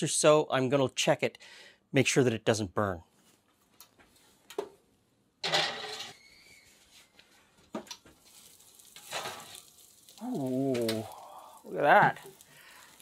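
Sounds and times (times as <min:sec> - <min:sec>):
metal pan clattering on oven rack: 0:05.4 - 0:06.1.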